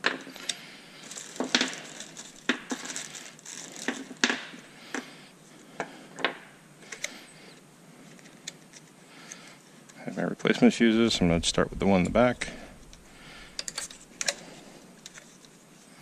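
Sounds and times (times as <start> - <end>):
small parts clicking and clattering: 0.0 - 5.1, 5.8 - 7.3, 12.8 - 15.6
plastic bag crinkling: 0.3 - 4.7, 10.8 - 15.4.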